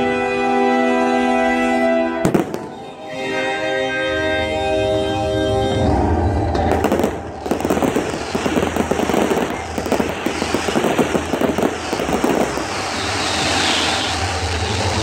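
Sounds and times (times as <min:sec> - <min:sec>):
fireworks popping and crackling: 0:02.2 - 0:03.0, 0:06.6 - 0:15.0.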